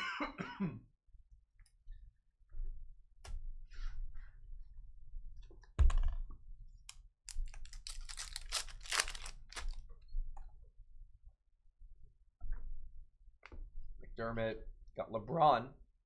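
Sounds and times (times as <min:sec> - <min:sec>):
foil wrapper crinkling: 0:07.3 - 0:09.8.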